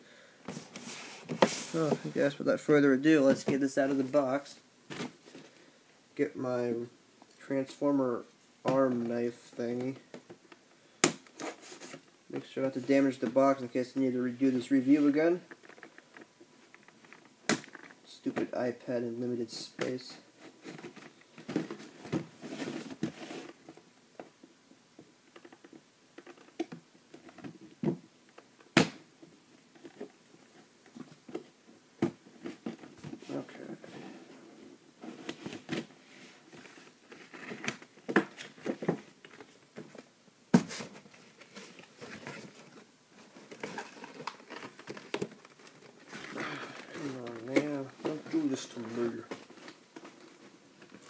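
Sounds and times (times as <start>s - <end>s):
cardboard rustling and crinkling: 0.5s - 2.4s, 20.2s - 24.4s, 29.6s - 51.0s.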